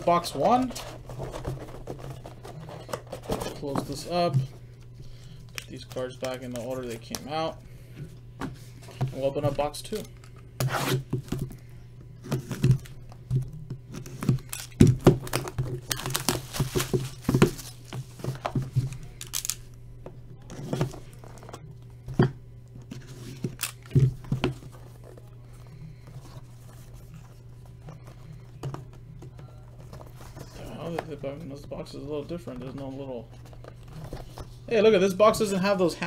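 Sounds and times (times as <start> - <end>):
steady low hum: 0.0 - 36.0
plastic wrap tearing and crinkling: 14.4 - 18.0.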